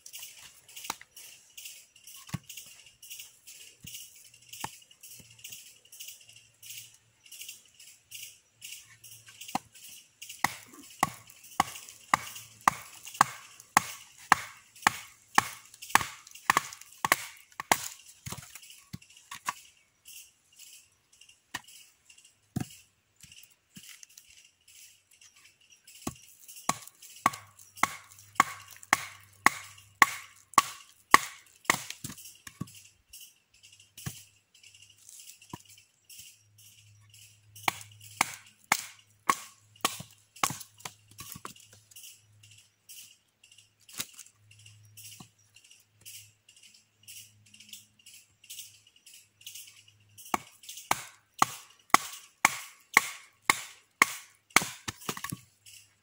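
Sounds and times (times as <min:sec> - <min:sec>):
high insect drone: 0:00.0 - 0:40.2
machete knocking into wood: 0:10.4 - 0:18.5, 0:26.7 - 0:32.1, 0:37.7 - 0:40.7.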